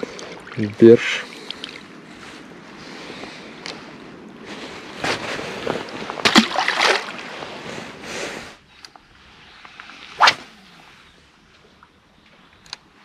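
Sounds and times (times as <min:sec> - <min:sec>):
water splashing: 0:00.0 - 0:01.9, 0:06.2 - 0:07.5
sharp whip-like swish: 0:10.2 - 0:10.6.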